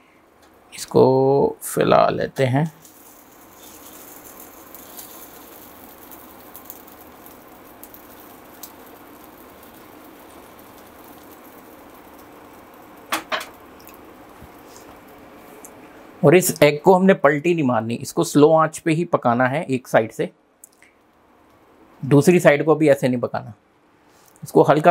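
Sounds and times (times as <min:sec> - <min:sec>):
faint crackles: 0:02.4 - 0:16.7
egg sizzling in oil: 0:02.8 - 0:16.2.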